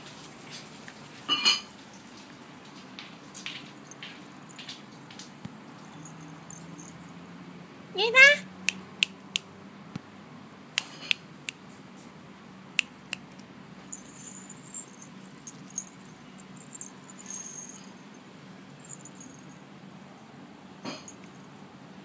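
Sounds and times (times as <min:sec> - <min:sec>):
collar bells tinkling: 0:03.4 - 0:05.0, 0:05.7 - 0:07.4, 0:13.8 - 0:19.7.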